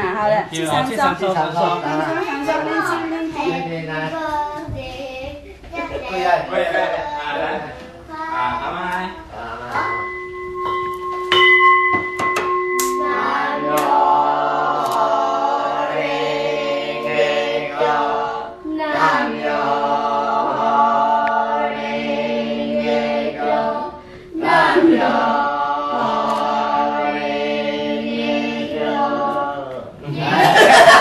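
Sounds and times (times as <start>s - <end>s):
voices chanting: 12.8s - 31.0s.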